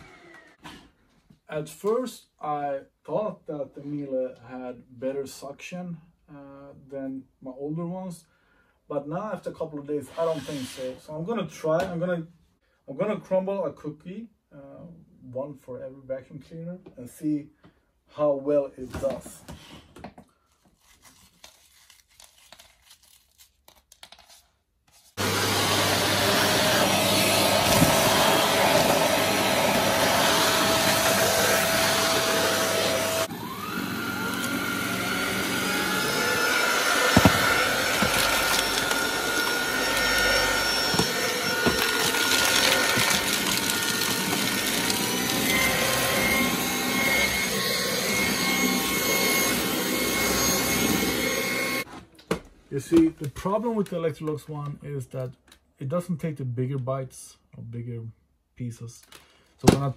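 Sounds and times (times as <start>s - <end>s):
cordless vacuum running: 0.0s - 0.6s, 25.2s - 51.9s.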